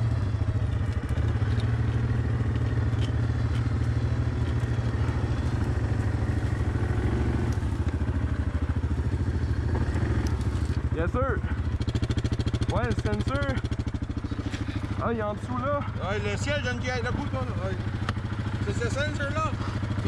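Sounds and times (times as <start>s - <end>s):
engine running steadily: 0.0s - 20.0s
light clicks and clatter: 0.4s - 6.7s.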